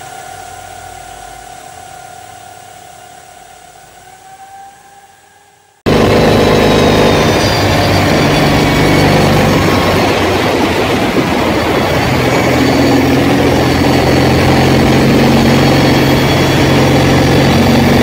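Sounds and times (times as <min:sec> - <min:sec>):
higher hum: 0:00.0 - 0:18.0
road and wind noise: 0:04.8 - 0:18.0.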